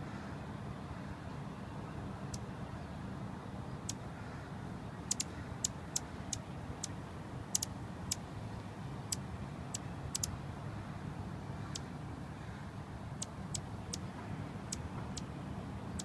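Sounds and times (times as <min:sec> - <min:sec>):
low rumble of traffic: 0:00.0 - 0:16.0
hummingbird chip calls: 0:05.0 - 0:08.2, 0:09.1 - 0:10.3.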